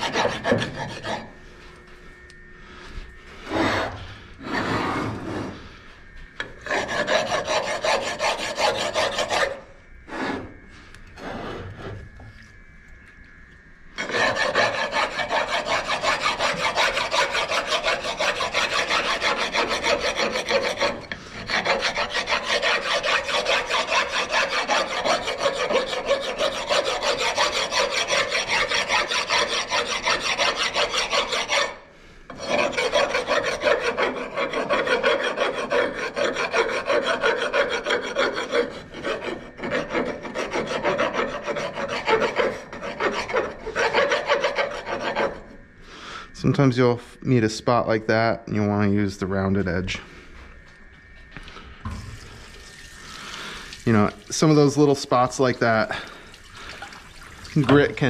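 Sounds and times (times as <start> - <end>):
rasp scraping stone: 0.0 - 1.4, 6.4 - 10.5, 14.0 - 45.6.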